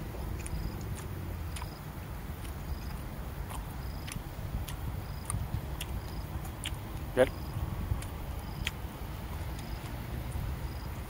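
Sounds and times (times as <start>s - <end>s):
person chewing: 0.0s - 10.0s
low background rumble: 0.0s - 11.0s
wet mouth clicks: 0.3s - 1.8s, 2.4s - 8.8s.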